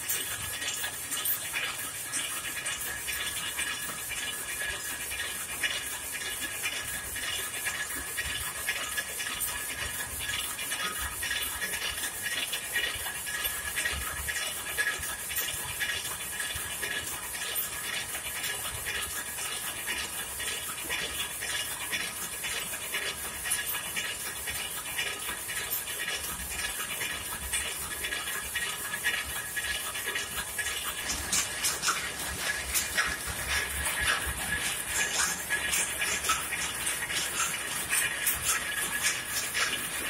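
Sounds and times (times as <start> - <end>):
steady mechanical hiss: 0.0 - 40.0
loom clattering: 25.5 - 40.0.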